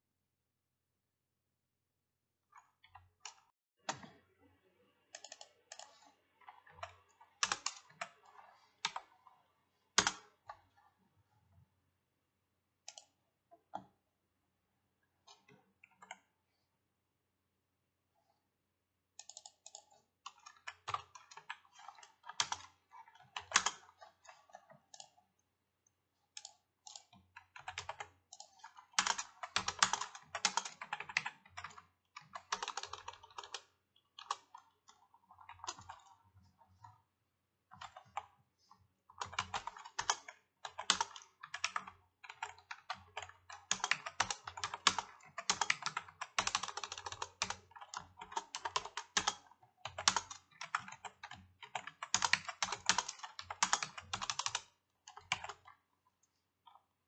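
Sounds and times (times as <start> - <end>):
typing on computer keyboard: 5.2 - 9.2, 10.0 - 10.7, 19.2 - 25.2, 26.4 - 36.2, 37.7 - 38.3, 39.1 - 55.8.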